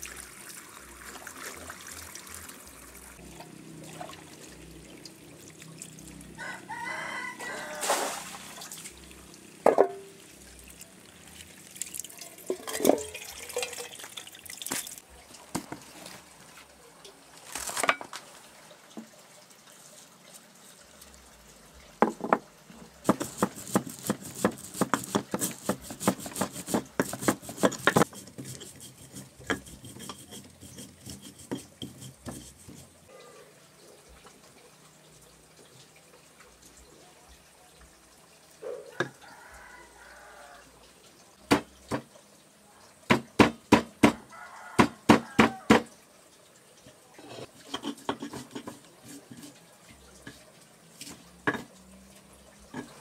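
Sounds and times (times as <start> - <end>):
stone pestle pounding in mortar: 23.1 - 28.3.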